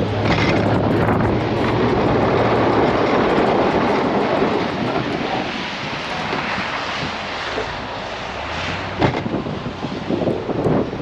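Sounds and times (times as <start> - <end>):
plow blade scraping snow: 0.0 - 10.2
truck engine drone: 0.0 - 11.0.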